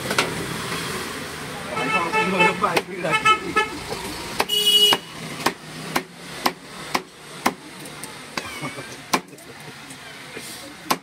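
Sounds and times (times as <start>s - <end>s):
knife chopping on wooden block: 4.4s - 7.6s, 9.1s - 9.3s
vehicle horn toot: 4.5s - 5.1s.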